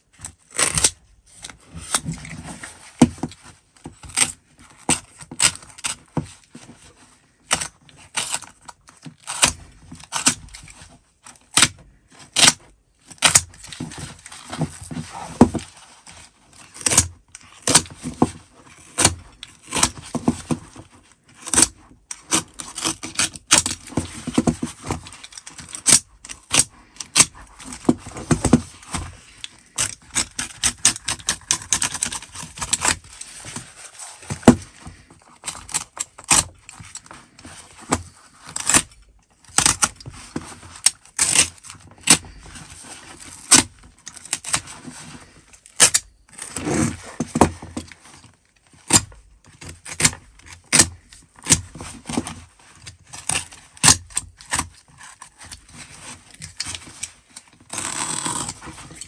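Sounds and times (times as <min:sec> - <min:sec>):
utility knife cutting fabric: 0:57.7 - 0:58.7.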